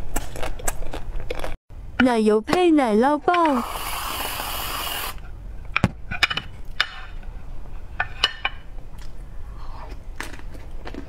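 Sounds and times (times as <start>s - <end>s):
aerosol whipped cream can hissing: 3.4s - 5.2s.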